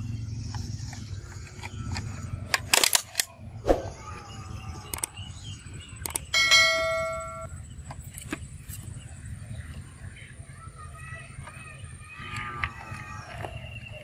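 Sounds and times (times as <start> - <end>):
sharp clicks: 4.8 - 5.2, 6.0 - 6.3.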